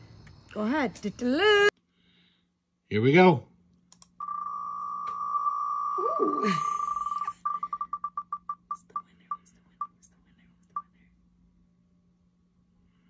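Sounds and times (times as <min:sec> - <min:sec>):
spinner wheel ticking: 0:06.0 - 0:08.8.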